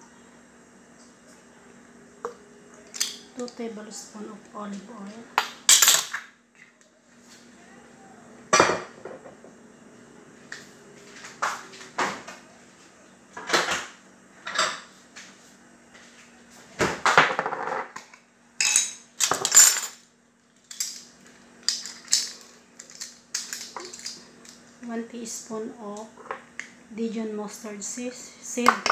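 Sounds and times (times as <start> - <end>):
faint steady hum: 0.0 - 28.9
kitchen items clinking and knocking: 18.6 - 20.0.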